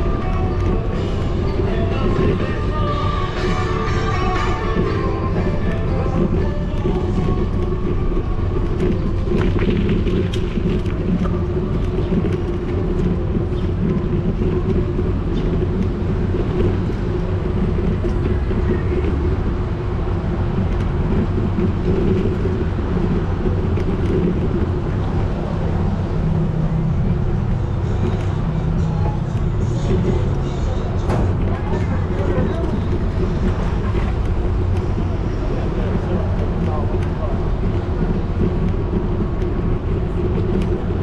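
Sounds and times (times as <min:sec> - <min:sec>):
bicycle rolling over brick paving: 0:00.0 - 0:19.4.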